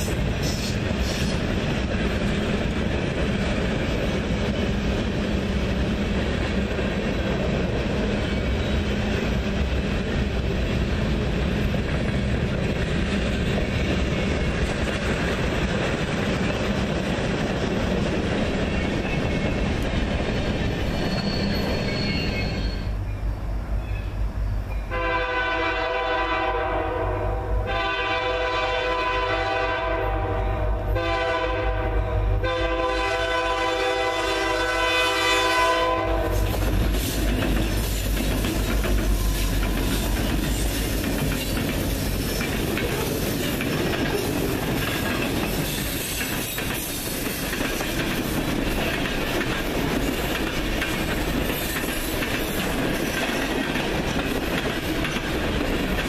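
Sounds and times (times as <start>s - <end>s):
low locomotive rumble: 0.0s - 56.0s
locomotive horn: 24.9s - 36.6s.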